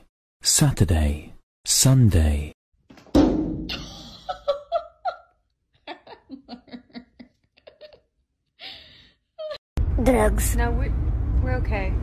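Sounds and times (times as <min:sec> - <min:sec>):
person laughing: 0:03.7 - 0:08.2.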